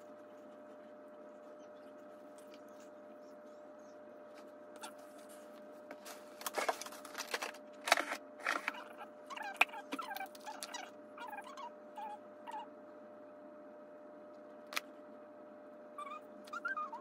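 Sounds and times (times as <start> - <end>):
faint hum: 0.0 - 17.0
packet rustling and clicking: 6.0 - 8.9.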